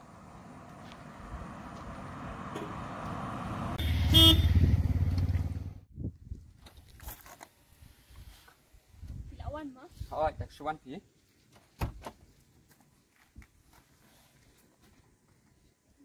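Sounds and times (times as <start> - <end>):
vehicle passing: 0.0 - 5.8
short horn toot: 3.8 - 4.7.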